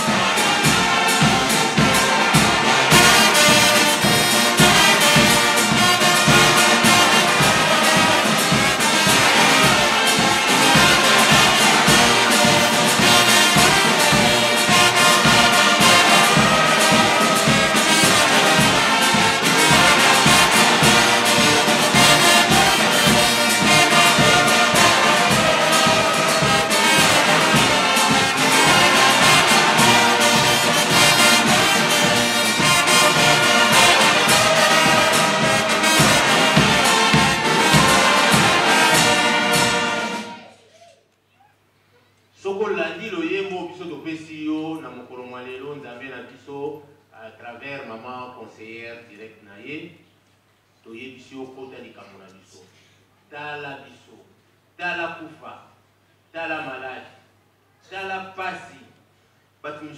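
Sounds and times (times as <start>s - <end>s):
brass band playing: 0.0s - 40.6s.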